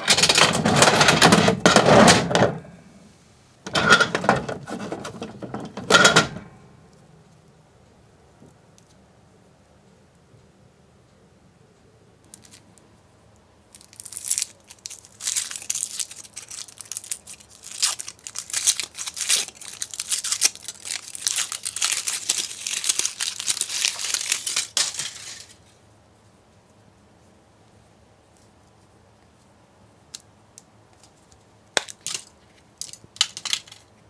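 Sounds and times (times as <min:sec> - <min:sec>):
foil wrapper crinkling and tearing: 0:13.7 - 0:25.6.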